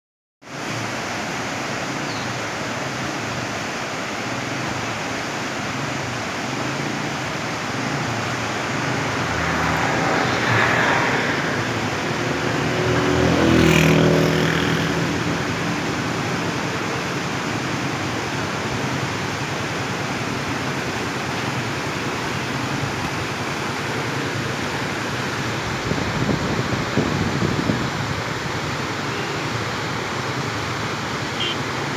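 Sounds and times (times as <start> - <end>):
river rapids rushing: 0.5 - 31.9
motor vehicle passing: 6.6 - 16.8.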